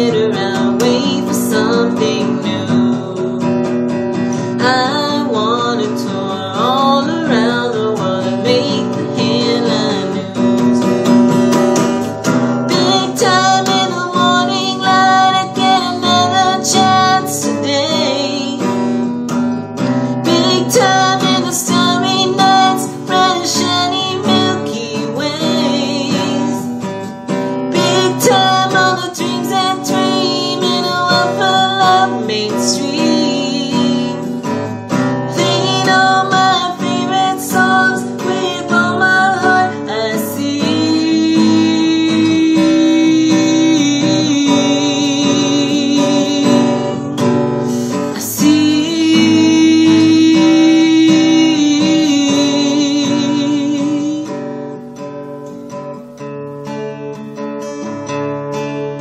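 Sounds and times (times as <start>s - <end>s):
man singing: 0.0s - 3.6s, 35.3s - 47.2s, 48.1s - 54.4s
acoustic guitar strumming: 0.0s - 59.0s.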